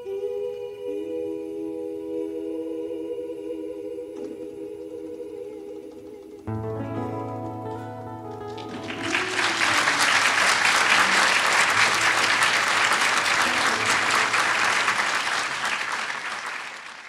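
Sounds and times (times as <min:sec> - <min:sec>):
audience applauding: 0:08.3 - 0:17.0.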